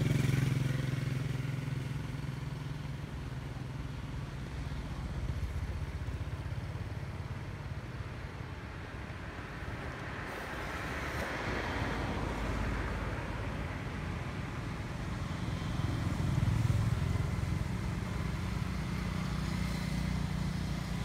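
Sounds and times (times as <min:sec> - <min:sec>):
vehicle engine humming: 0:00.0 - 0:21.0.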